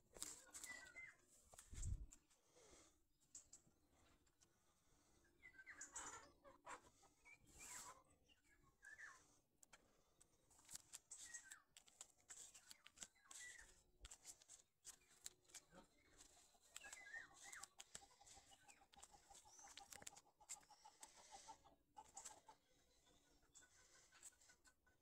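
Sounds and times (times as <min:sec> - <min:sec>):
hens clucking: 0:05.5 - 0:08.2, 0:15.2 - 0:25.0
small clicks: 0:09.6 - 0:21.1.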